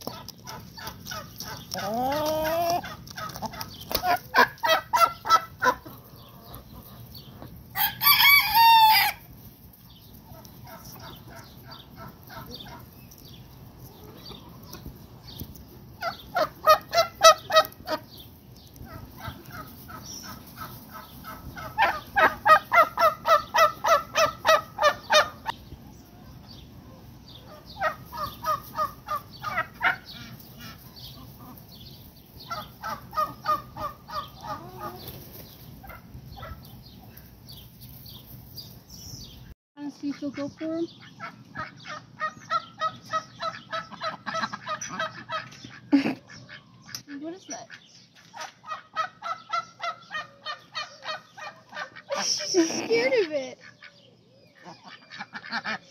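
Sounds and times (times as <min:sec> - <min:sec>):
chickens clucking: 0:00.0 - 0:55.9
rooster crowing: 0:07.8 - 0:09.3.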